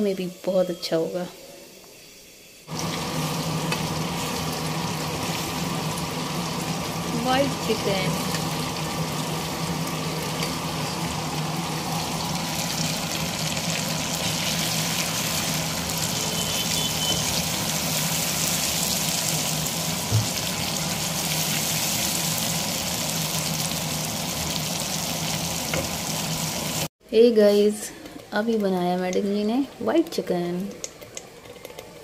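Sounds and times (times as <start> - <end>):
chicken sizzling in hot oil: 2.0 - 26.9.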